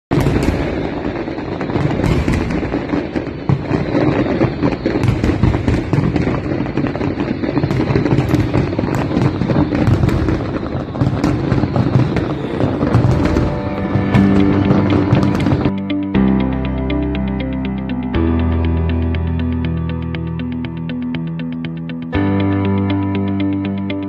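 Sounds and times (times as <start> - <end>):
fireworks bangs and crackles: 0.1 - 16.0.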